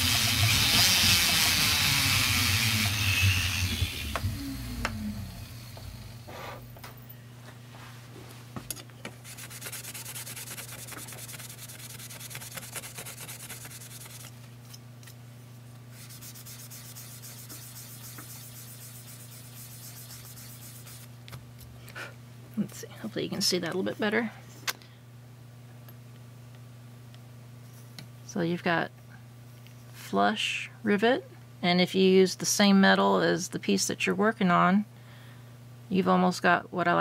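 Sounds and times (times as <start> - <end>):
hand sanding brass: 0.0 - 4.0, 9.2 - 14.3, 16.0 - 21.1
grinder motor winding down: 0.0 - 6.8.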